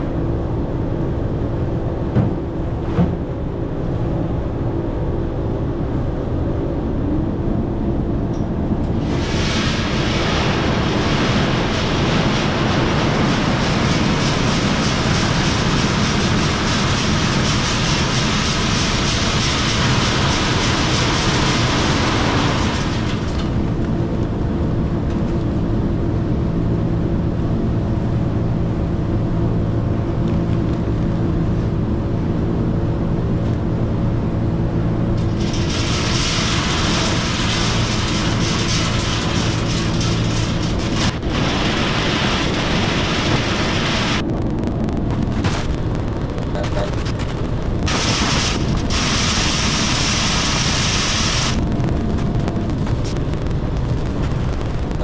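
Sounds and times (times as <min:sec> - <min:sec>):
machinery humming: 0:00.0 - 0:55.0
grass cobs pouring into bag: 0:35.2 - 0:44.2.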